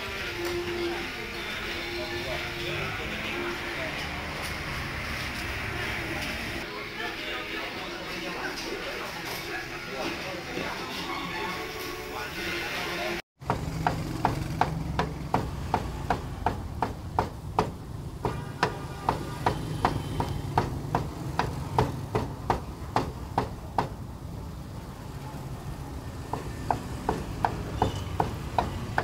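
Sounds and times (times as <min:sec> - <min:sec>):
cleaver chopping on wooden block: 0:13.4 - 0:24.0.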